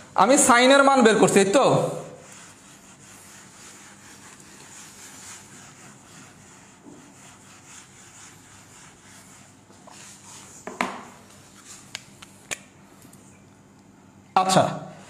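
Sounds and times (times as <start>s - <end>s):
eraser wiping whiteboard: 0.0s - 12.0s.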